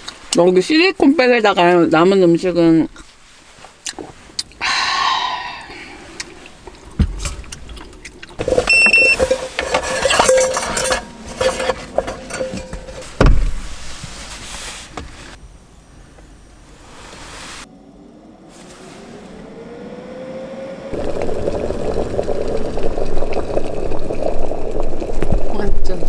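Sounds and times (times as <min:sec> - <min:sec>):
dishes clinking and rustling: 0:06.9 - 0:14.4
dull thumps: 0:08.4 - 0:15.2
short electronic beep: 0:08.7 - 0:09.2.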